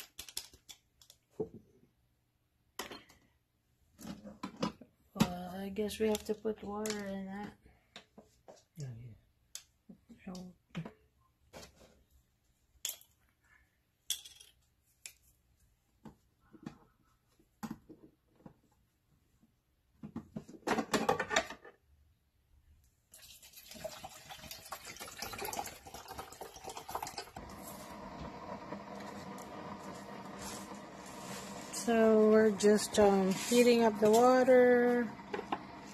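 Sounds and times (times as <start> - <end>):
water pouring from plastic bottle: 23.1 - 27.6
coffee brewer humming and hissing: 25.0 - 35.9.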